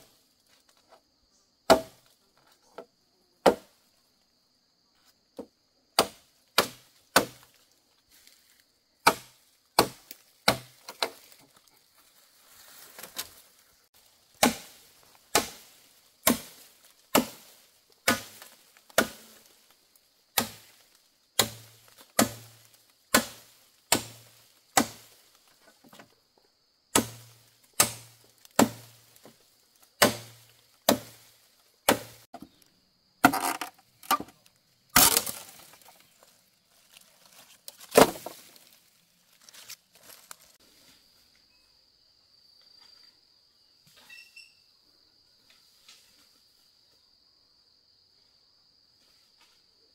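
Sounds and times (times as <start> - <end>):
blade chopping wood: 1.7 - 2.0, 3.4 - 3.7, 6.0 - 7.5, 9.0 - 11.4, 14.4 - 19.4, 20.3 - 20.8, 21.4 - 25.2, 26.9 - 29.3, 30.0 - 32.5, 33.2 - 36.0, 37.7 - 38.7.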